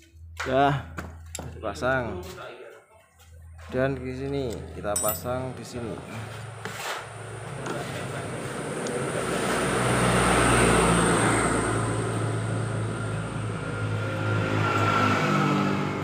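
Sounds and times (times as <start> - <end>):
vehicle passing by: 6.0 - 16.0.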